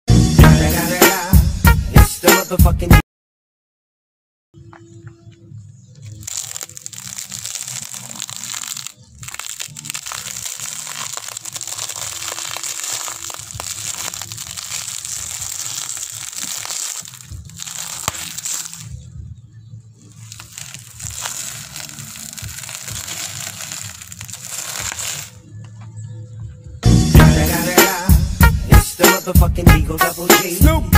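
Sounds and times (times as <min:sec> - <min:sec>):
candy wrappers crinkling and crushing: 0:06.0 - 0:19.0, 0:20.1 - 0:25.4.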